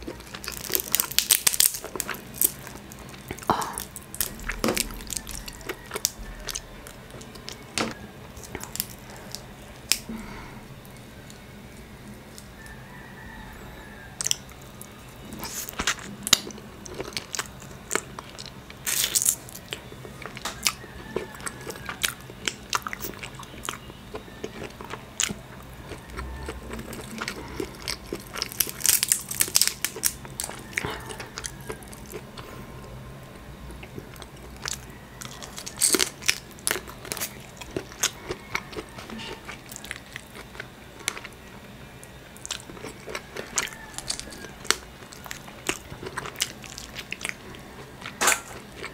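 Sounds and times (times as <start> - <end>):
chewing: 0.0 - 13.2, 14.2 - 33.0, 33.6 - 48.9
crab shell cracking: 0.1 - 10.1, 27.3 - 30.8.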